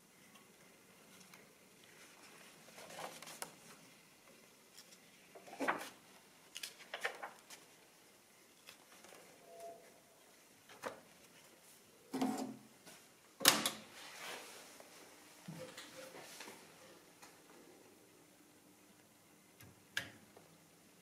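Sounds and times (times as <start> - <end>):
paper pages rustling: 1.1 - 4.0, 4.7 - 7.9.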